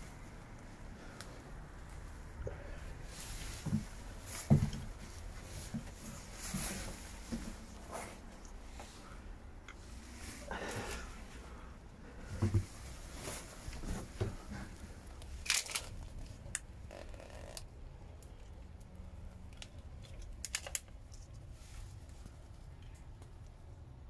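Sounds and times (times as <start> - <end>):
low steady hum: 0.0 - 24.0
short rustles: 3.0 - 9.2, 12.2 - 16.0.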